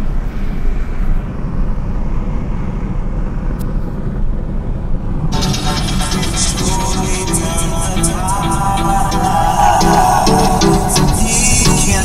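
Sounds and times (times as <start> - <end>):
car engine and road noise: 0.0 - 12.0
music: 5.4 - 12.0.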